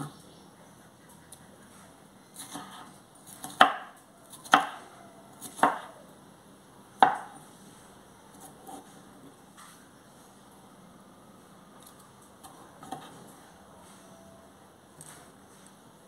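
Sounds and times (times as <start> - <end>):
knife cutting pepper: 2.3 - 4.8, 5.4 - 6.0.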